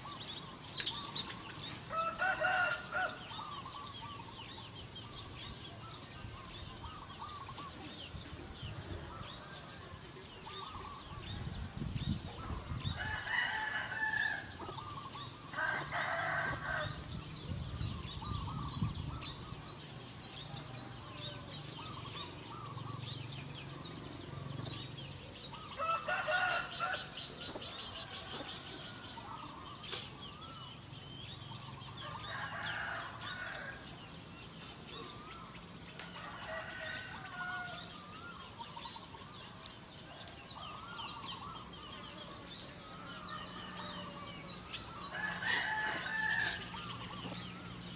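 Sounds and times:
small birds chirping: 0:00.0 - 0:47.9
rooster crowing: 0:01.9 - 0:03.4, 0:12.9 - 0:14.6, 0:15.5 - 0:17.1, 0:25.7 - 0:29.5, 0:32.0 - 0:33.9, 0:36.2 - 0:37.9, 0:43.0 - 0:47.0.

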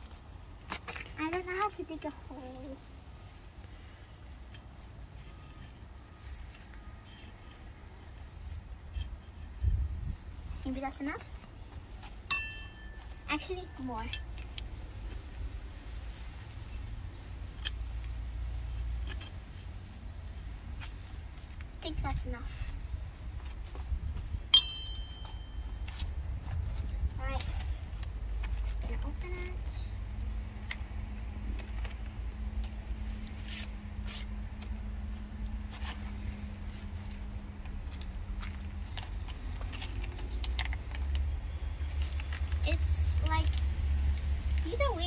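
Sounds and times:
low hum and rumble: 0:01.2 - 0:45.0
metal trowel scraping soil: 0:03.8 - 0:11.1, 0:12.3 - 0:21.4.

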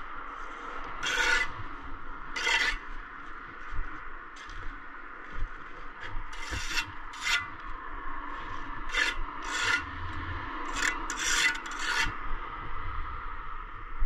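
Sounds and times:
hand tool scraping brickwork: 0:01.0 - 0:01.6, 0:02.4 - 0:02.9, 0:06.0 - 0:07.6, 0:08.5 - 0:10.0, 0:10.6 - 0:12.2.

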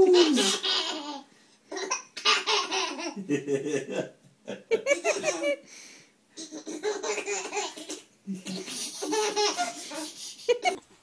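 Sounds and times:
baby giggling: 0:00.0 - 0:03.3, 0:04.8 - 0:05.6, 0:06.4 - 0:10.8.

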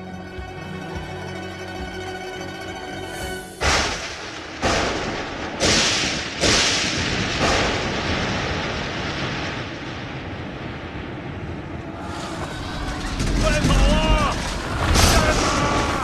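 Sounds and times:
thunder cracking and rumbling: 0:03.6 - 0:16.0.

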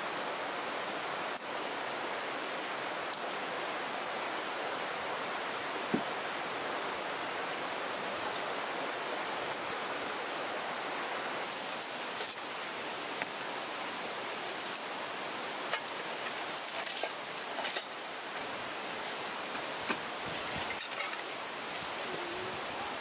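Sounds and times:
mountain stream rushing: 0:00.0 - 0:23.0
camping gear clicks and rustles: 0:11.4 - 0:12.5, 0:15.6 - 0:22.3.

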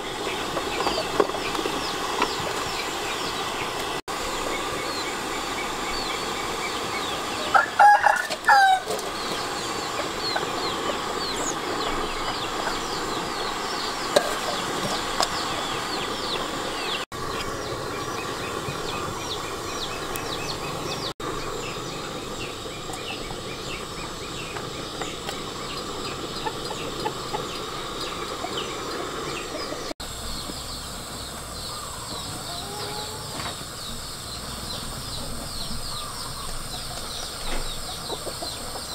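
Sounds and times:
rooster crowing: 0:07.4 - 0:09.0, 0:31.8 - 0:33.4
rapid high chirping: 0:09.1 - 0:38.9.

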